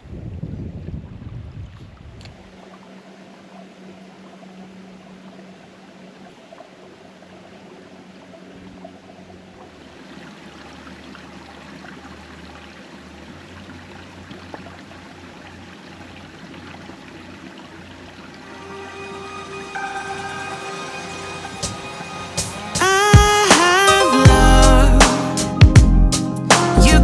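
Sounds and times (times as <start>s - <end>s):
water trickling over stones: 1.8s - 18.5s.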